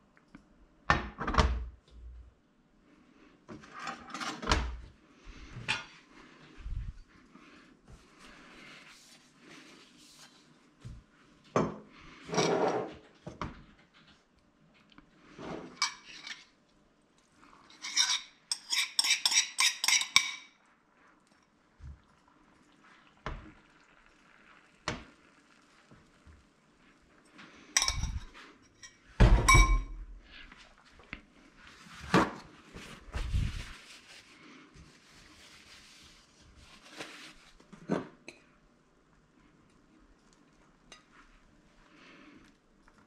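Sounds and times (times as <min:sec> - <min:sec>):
fork clinking against bowl: 0:17.8 - 0:20.5.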